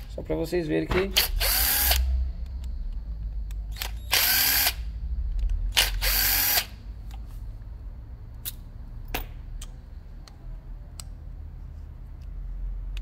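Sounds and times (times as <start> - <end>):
cordless screwdriver whirring: 1.2 - 2.1, 3.7 - 4.8, 5.7 - 6.8.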